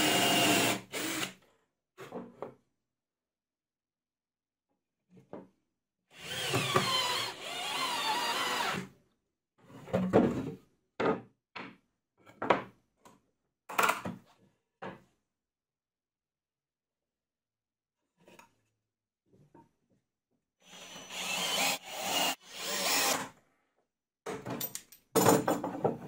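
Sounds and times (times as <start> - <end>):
cordless drill driving screws: 0.0 - 1.4, 6.2 - 8.8, 20.7 - 23.3.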